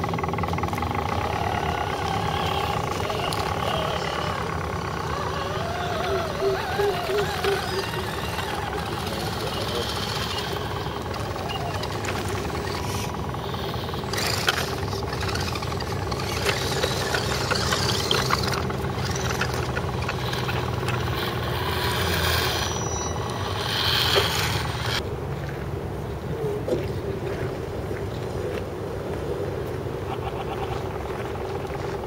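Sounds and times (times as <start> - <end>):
electric motors droning: 0.0 - 25.0.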